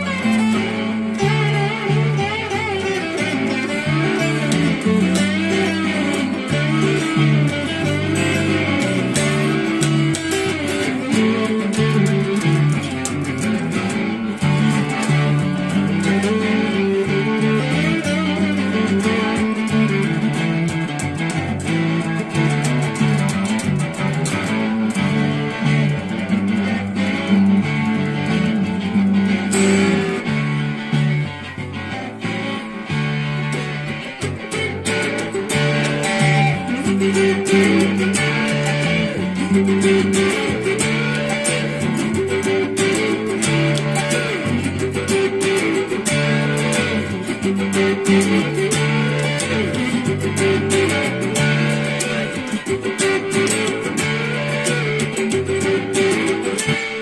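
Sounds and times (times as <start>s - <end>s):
overdriven electric guitar riff: 0.0s - 57.0s.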